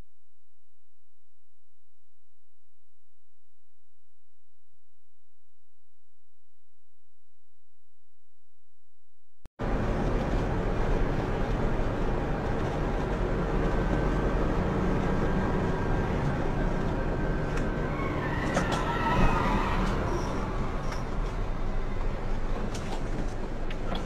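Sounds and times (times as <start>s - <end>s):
truck engine and road noise: 9.6s - 24.0s.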